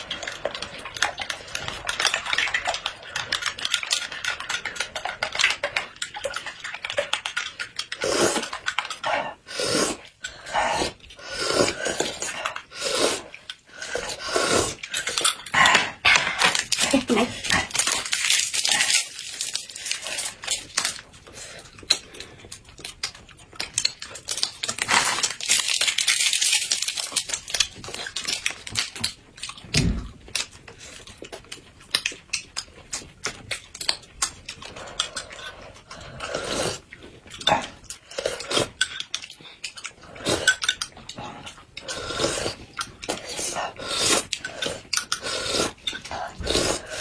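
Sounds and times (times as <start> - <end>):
close-up chewing: 0.0 - 47.0
person sipping a drink: 7.8 - 22.5, 34.7 - 38.9, 41.4 - 47.0
plastic wrappers crinkling: 16.3 - 22.0, 23.0 - 31.4.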